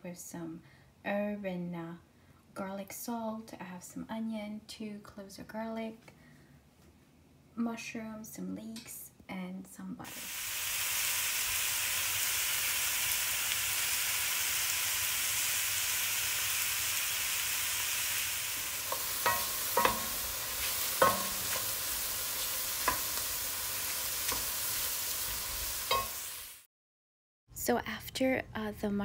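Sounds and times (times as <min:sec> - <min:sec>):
vegetables sizzling in butter: 0:10.0 - 0:26.7
wooden spoon knocking on pan: 0:18.9 - 0:21.7, 0:22.8 - 0:23.2.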